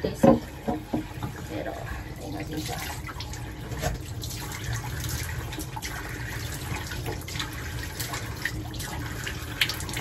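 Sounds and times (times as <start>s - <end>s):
tap water running into sink: 0.0s - 10.0s
water dripping: 0.0s - 10.0s.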